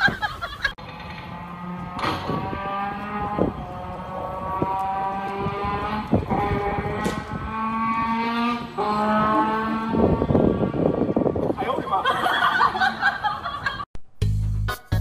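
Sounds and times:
trombone long held notes: 1.2 - 11.0.

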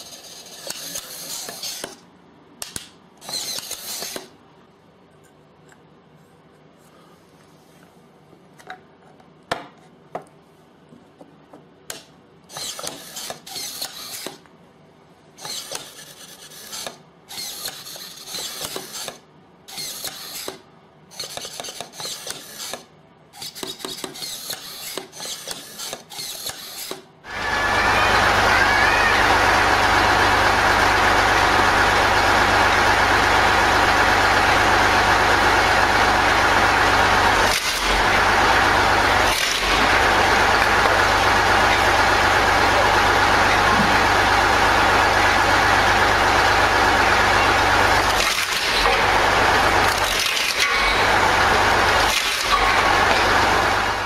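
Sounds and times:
log splitter humming: 27.3 - 54.0.

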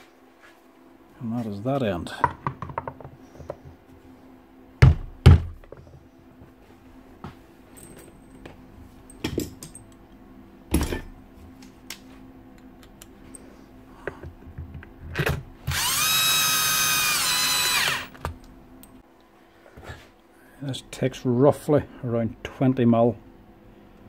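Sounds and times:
drill-driver whining: 15.7 - 18.2.

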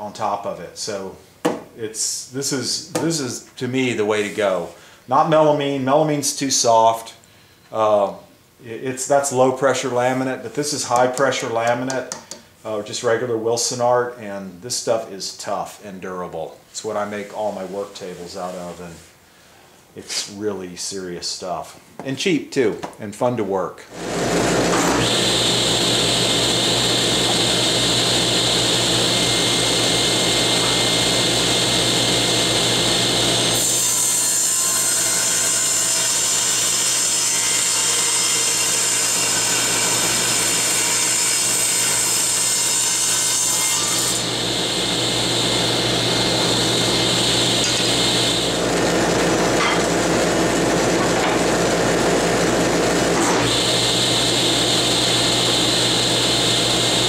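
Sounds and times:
table saw cutting wood: 23.9 - 57.0.

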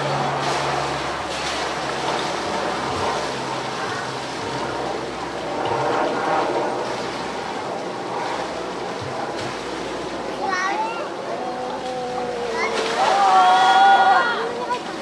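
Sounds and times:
water splashing: 0.0 - 15.0.

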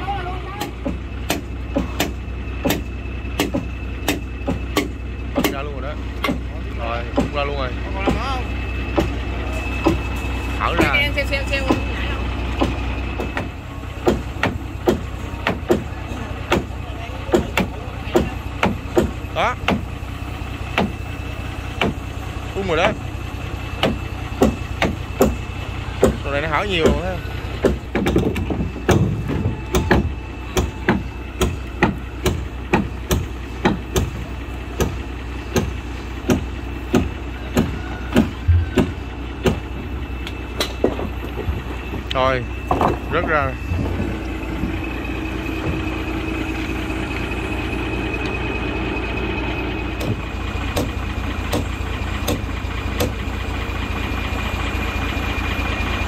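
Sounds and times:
low engine hum: 0.0 - 56.0
hammer blows on wooden timbers: 26.8 - 34.2, 34.8 - 39.7.

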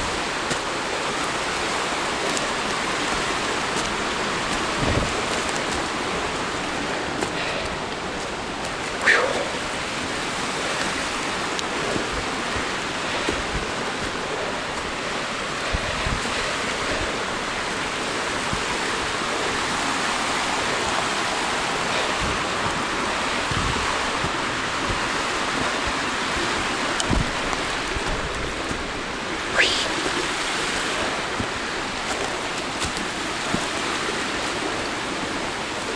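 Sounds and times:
stream rushing over rocks: 0.0 - 35.9.

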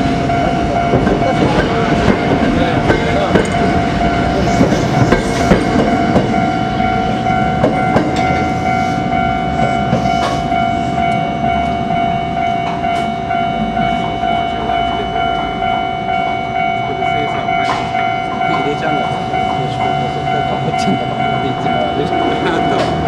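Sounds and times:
steady high tone: 0.0 - 23.0
train wheels clattering over rail joints: 0.4 - 6.9.

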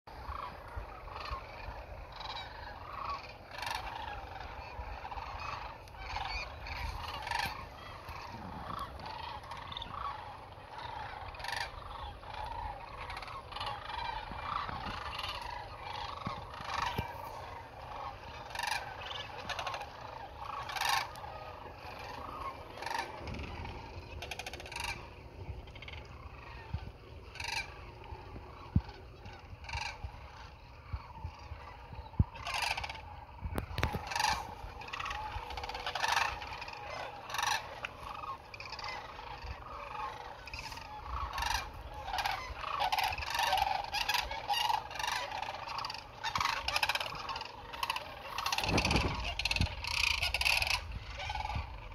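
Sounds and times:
cranes calling: 0.1 - 51.9.

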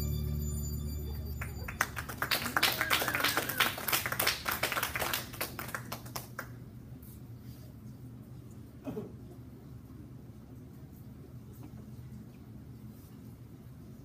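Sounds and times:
song ending: 0.0 - 2.2
audience clapping: 1.2 - 6.6.

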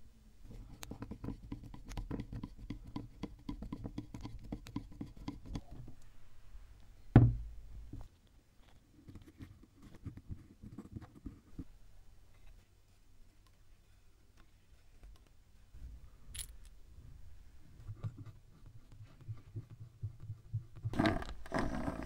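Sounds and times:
taps and scrapes: 0.5 - 6.0, 17.8 - 21.7
loud knock with low thud: 7.2 - 7.5.

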